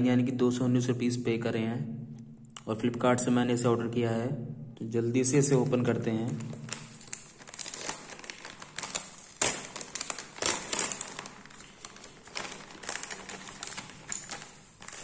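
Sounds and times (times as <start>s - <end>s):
plastic bag crinkling: 5.5s - 15.0s.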